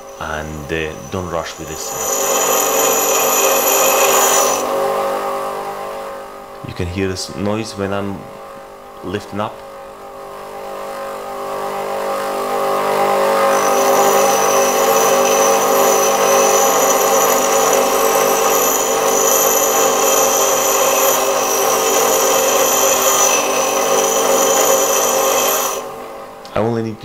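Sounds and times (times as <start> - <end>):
grinder wheel grinding metal: 0.0 - 5.1, 12.9 - 26.1.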